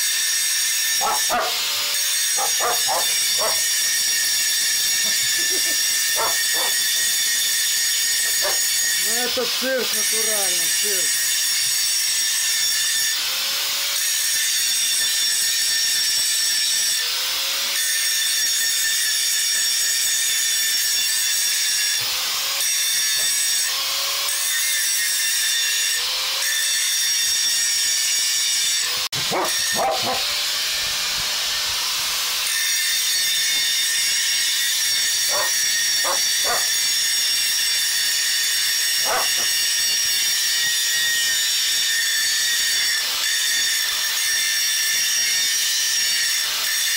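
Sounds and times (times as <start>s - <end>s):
angle grinder cutting steel pipe: 0.0s - 46.9s
dog barking: 1.0s - 1.7s, 2.4s - 3.6s, 6.2s - 6.8s, 8.3s - 8.6s, 29.2s - 30.4s, 35.3s - 36.8s, 39.0s - 39.5s.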